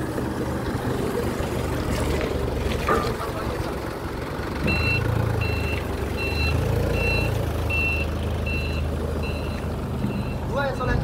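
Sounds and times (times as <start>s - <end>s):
diesel engine running: 0.0s - 11.0s
reversing alarm beeping: 4.6s - 10.5s.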